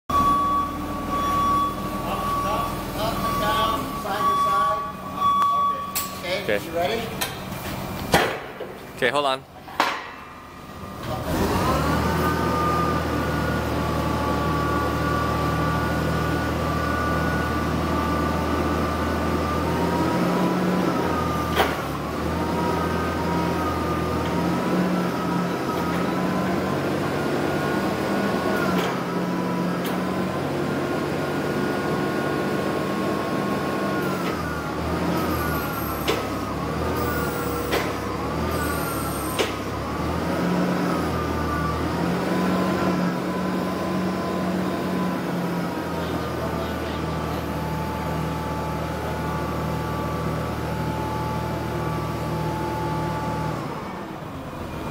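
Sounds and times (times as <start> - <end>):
forklift engine hum: 0.1 - 54.9
sharp knocks: 9.7 - 10.2.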